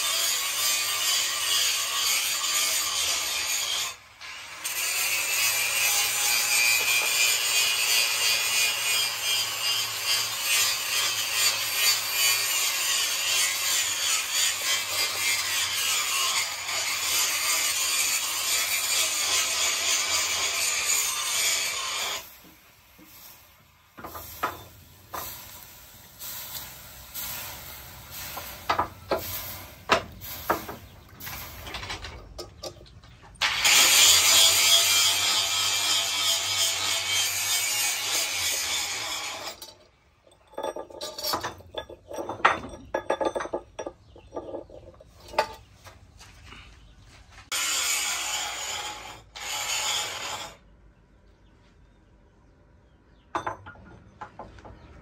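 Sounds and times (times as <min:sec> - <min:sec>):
gritty scraping: 0:04.6 - 0:50.6
metal clinking on stone: 0:39.4 - 0:45.6.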